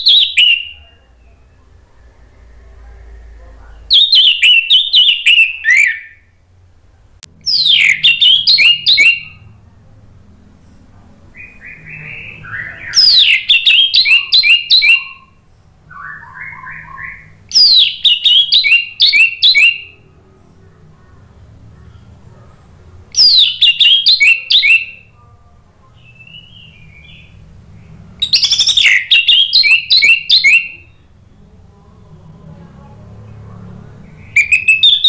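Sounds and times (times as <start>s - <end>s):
thrush singing: 7.2s - 35.0s.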